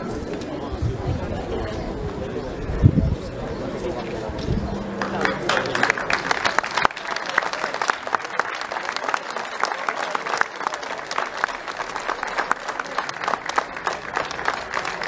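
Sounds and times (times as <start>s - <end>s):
crowd applauding: 4.9s - 15.0s.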